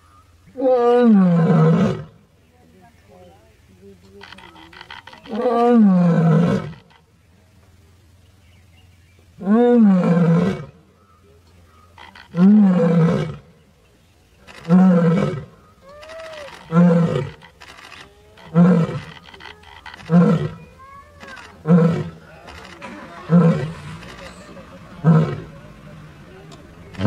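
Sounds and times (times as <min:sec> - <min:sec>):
lioness roaring: 0:04.2 - 0:07.0, 0:11.9 - 0:13.5, 0:14.5 - 0:20.6, 0:21.2 - 0:24.2.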